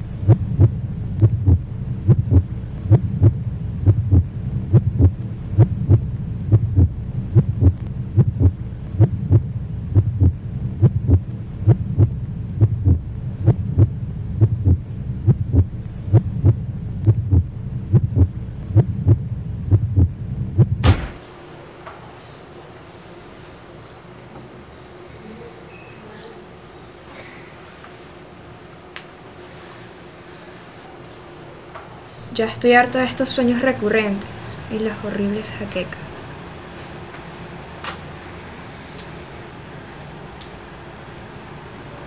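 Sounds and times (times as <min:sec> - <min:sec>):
low droning hum: 0:00.0 - 0:22.8, 0:31.2 - 0:41.7
heartbeat thuds: 0:00.2 - 0:21.2.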